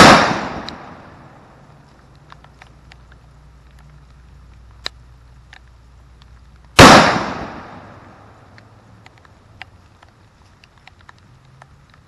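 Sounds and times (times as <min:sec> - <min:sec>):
gunshot blast with echo: 0:00.0 - 0:01.1, 0:06.8 - 0:08.0.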